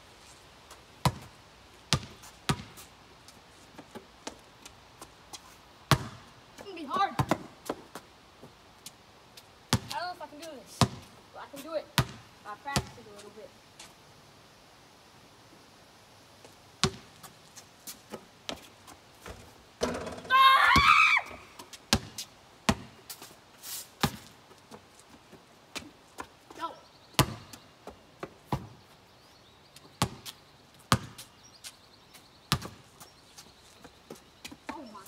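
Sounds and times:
basketball bouncing: 0:01.9 - 0:02.7, 0:05.9 - 0:06.2, 0:10.8 - 0:11.1, 0:12.0 - 0:12.2, 0:16.8 - 0:17.1, 0:19.2 - 0:20.3, 0:27.2 - 0:27.5, 0:30.0 - 0:30.3, 0:30.9 - 0:31.2.

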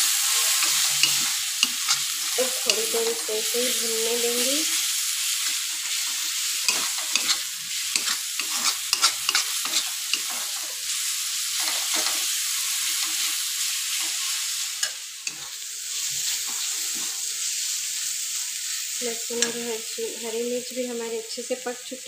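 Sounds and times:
paste sizzling in oil: 0:00.0 - 0:21.0
metal spatula scraping pan: 0:00.4 - 0:03.5, 0:05.4 - 0:10.7.

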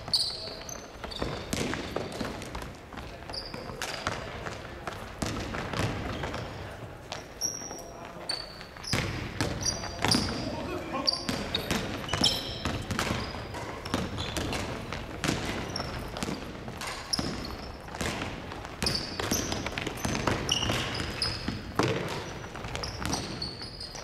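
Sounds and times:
sneakers squeaking on court: 0:00.0 - 0:24.0
basketball bouncing on wooden floor: 0:01.0 - 0:03.1, 0:05.2 - 0:06.5, 0:08.8 - 0:10.4, 0:11.3 - 0:23.6.

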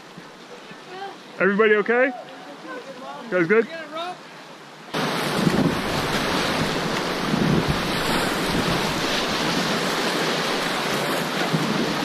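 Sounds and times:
river whitewater rushing: 0:00.0 - 0:12.0
wind buffeting microphone: 0:05.2 - 0:12.0.

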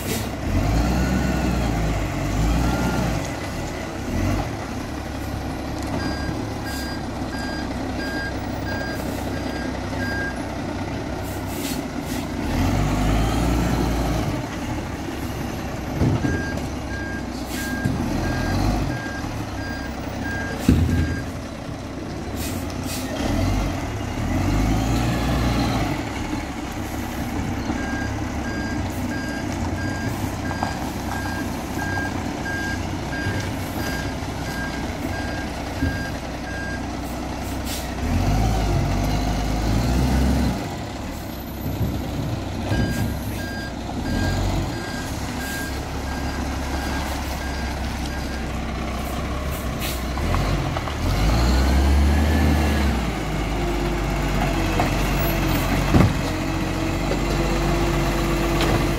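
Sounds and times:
garbage truck diesel engine: 0:00.0 - 0:58.9
reversing alarm beeping: 0:06.0 - 0:10.4, 0:27.6 - 0:36.8, 0:42.7 - 0:48.4.

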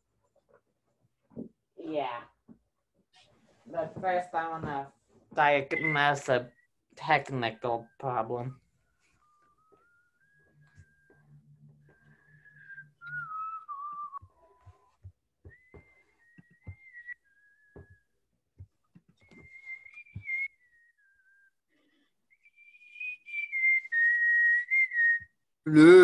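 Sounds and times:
person whistling a tune: 0:09.0 - 0:18.2, 0:19.1 - 0:25.5.

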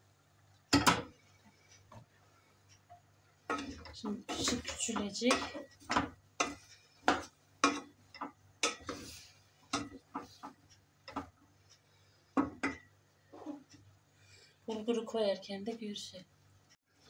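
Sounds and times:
wooden spoon knocking on metal pot: 0:00.7 - 0:01.2, 0:02.9 - 0:11.4, 0:12.4 - 0:13.6.

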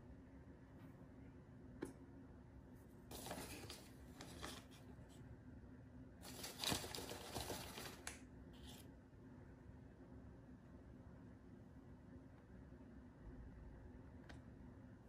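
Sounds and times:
faint rustling and crinkling: 0:02.8 - 0:05.3, 0:06.2 - 0:09.0.

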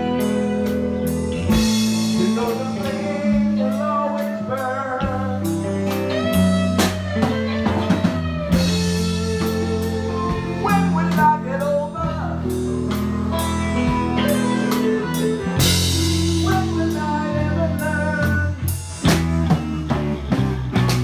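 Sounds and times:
man singing: 0:00.0 - 0:07.6, 0:08.5 - 0:13.0, 0:14.2 - 0:18.8
bass guitar: 0:00.0 - 0:21.0
drum kit with cymbal strikes: 0:00.0 - 0:21.0
electric guitar: 0:00.0 - 0:21.0.

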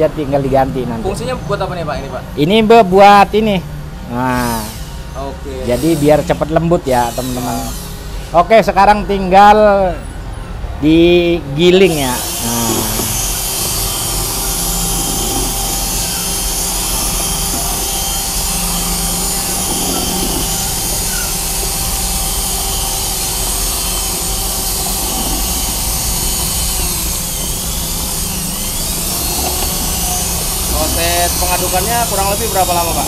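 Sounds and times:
electric drill mixing batter: 0:04.2 - 0:08.3, 0:11.6 - 0:33.0.

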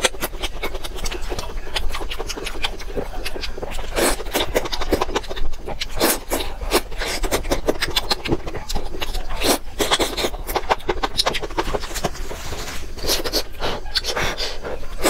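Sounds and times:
chewing and mouth clicks: 0:00.0 - 0:15.0.

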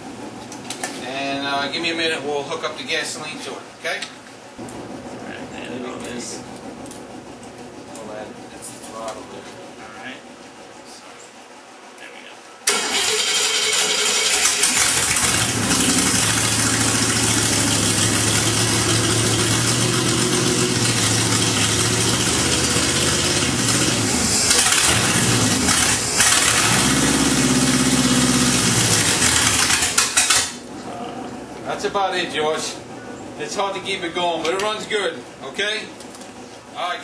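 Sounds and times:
unmuffled engine revving: 0:12.9 - 0:31.4.

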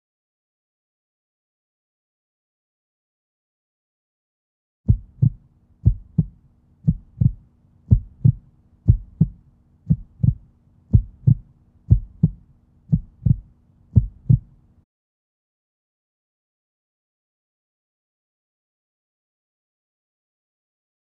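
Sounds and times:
heartbeat thumps: 0:04.9 - 0:14.5
faint steady hum: 0:04.9 - 0:14.8.

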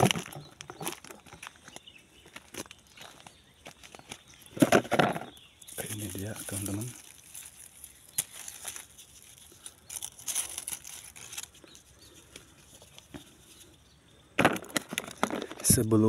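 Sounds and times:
dry vines and leaves rustling: 0:00.0 - 0:16.0
stems snapping: 0:05.7 - 0:13.2.

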